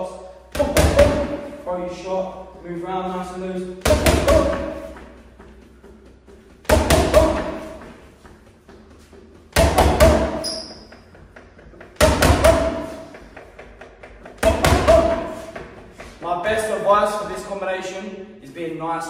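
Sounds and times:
high squeak: 10.4 - 11.0.

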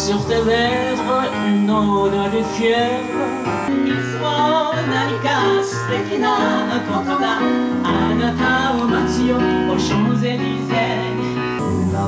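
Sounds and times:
electronic keyboard accompaniment: 0.0 - 12.0
woman singing through microphone: 0.0 - 12.0.

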